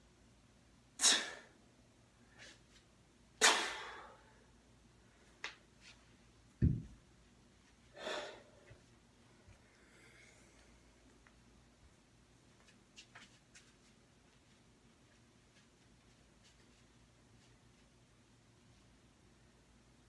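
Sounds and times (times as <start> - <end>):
kettlebell thud on floor: 6.6 - 7.0.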